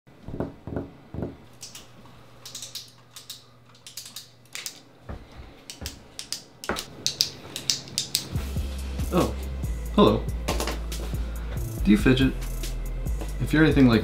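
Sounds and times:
fingers clicking and tapping: 5.7 - 8.4.

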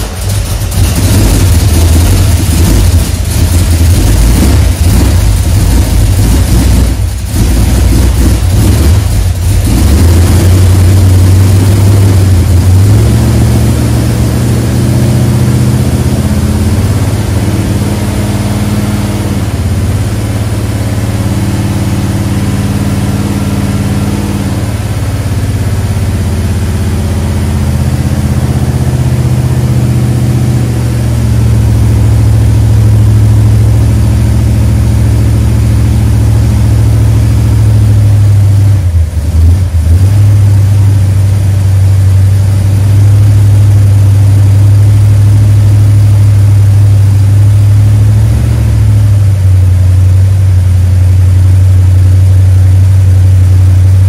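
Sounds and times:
car engine fast idle: 0.0 - 9.8.

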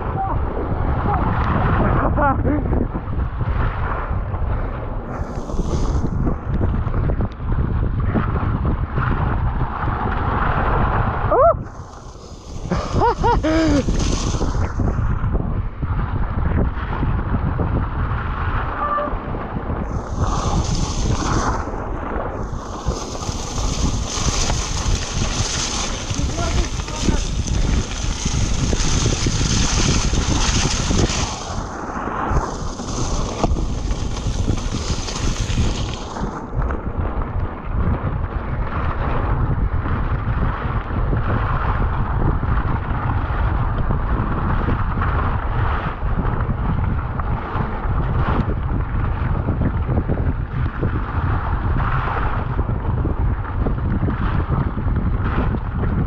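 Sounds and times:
bike tyres rumbling on gravel: 0.0 - 56.0
wind buffeting microphone: 0.0 - 56.0
bike rumbling over rocky trail: 19.8 - 37.9.

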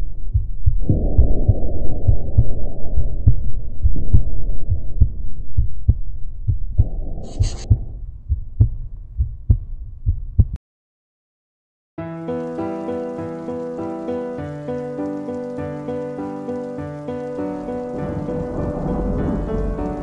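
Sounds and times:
heartbeat thumps: 0.0 - 10.6
muffled rumble: 0.0 - 10.6, 17.9 - 20.0
piano music: 12.0 - 20.0.

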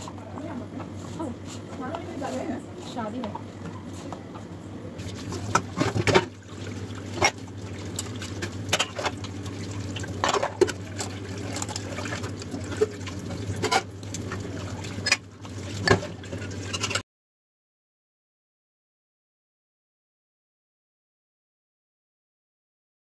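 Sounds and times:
tap water running into sink: 5.0 - 17.0
metal pans clanking: 5.3 - 6.4, 7.1 - 9.2, 10.2 - 11.8, 12.6 - 14.0, 14.9 - 17.0.

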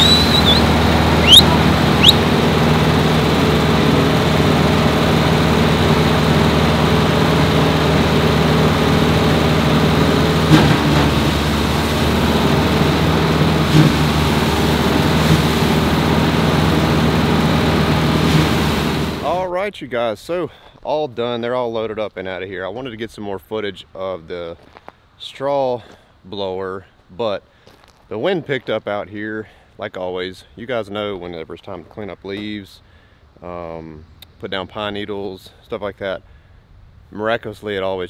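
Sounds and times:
engine drone: 0.0 - 19.5
fan rushing: 0.0 - 19.5.

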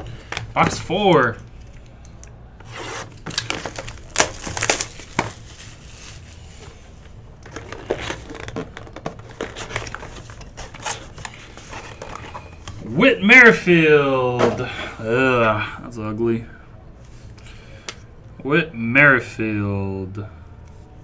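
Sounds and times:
plastic wrap crinkling: 3.2 - 12.4.

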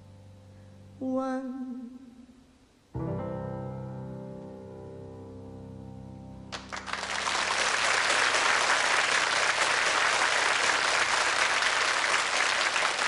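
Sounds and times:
piano chord: 3.0 - 6.9
studio audience applause: 6.5 - 13.0.

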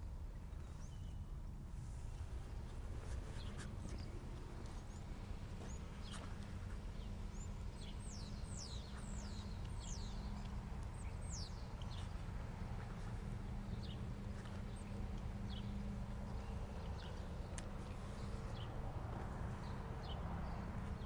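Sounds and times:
steady low rumble: 0.0 - 21.0.

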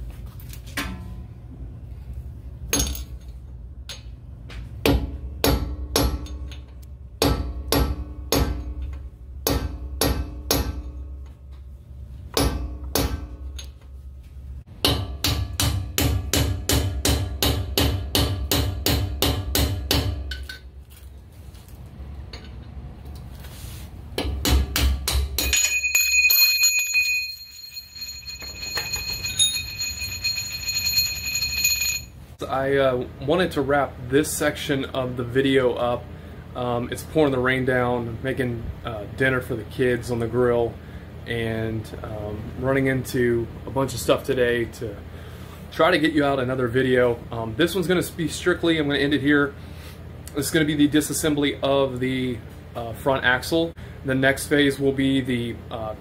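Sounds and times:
hammer striking metal punch: 2.7 - 3.2, 4.8 - 11.2, 12.3 - 13.7, 14.7 - 20.6, 24.2 - 26.4.

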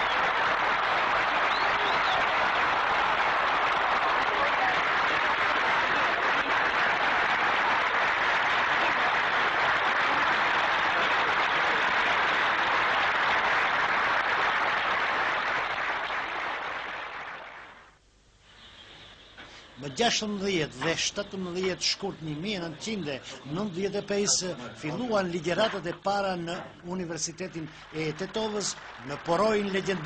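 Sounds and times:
large crowd applauding: 0.0 - 18.0, 19.8 - 30.0.

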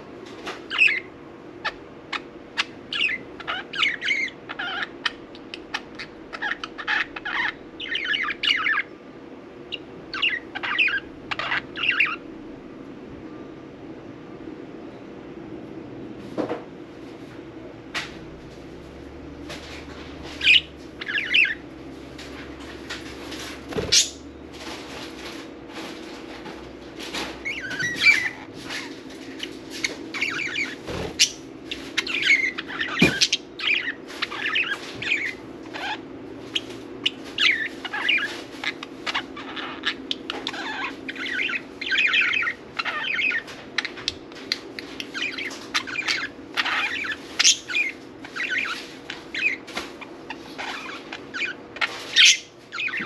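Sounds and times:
steady low hum: 0.0 - 53.0
budgerigars chirping: 0.7 - 8.9, 9.7 - 12.2, 20.2 - 24.3, 27.4 - 53.0.

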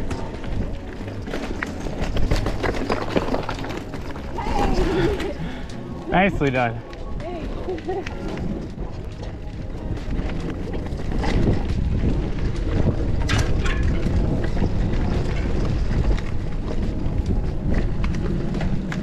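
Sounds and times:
bike knocks and rattles: 0.0 - 5.3, 7.8 - 19.0
bike rolling over rocky trail: 0.0 - 19.0
wind buffeting microphone: 3.8 - 19.0.

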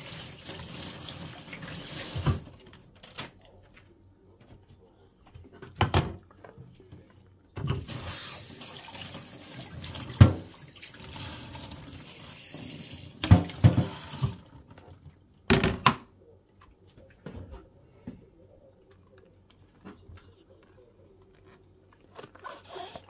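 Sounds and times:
tap running into sink: 9.9 - 11.2, 13.2 - 14.4.

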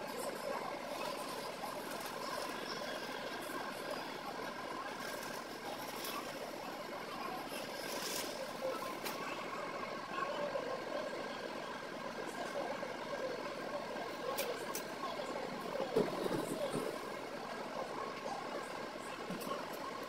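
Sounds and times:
faint hum: 0.0 - 20.0.

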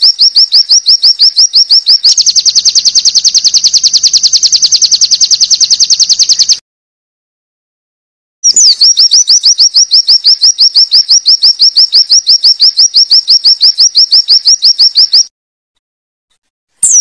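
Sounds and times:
bird whistling rapid notes: 8.4 - 15.3.

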